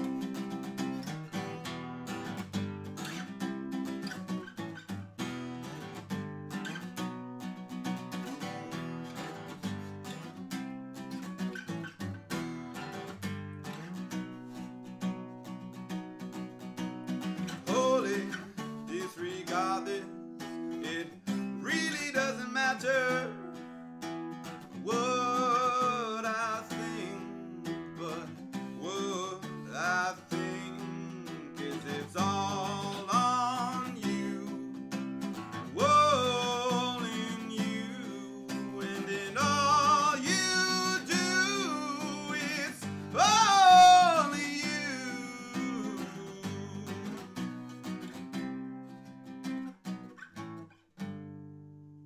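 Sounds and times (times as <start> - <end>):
acoustic guitar strumming: 0.0 - 52.0
man singing: 17.5 - 47.6.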